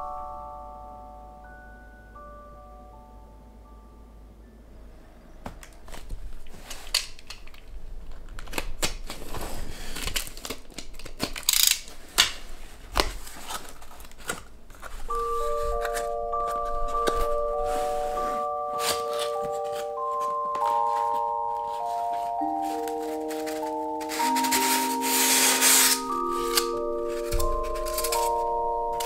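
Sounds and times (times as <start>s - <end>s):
chime-like music notes: 0.0s - 5.4s, 15.1s - 29.0s
cardboard rustling: 5.8s - 29.0s
tape tearing: 5.9s - 15.1s.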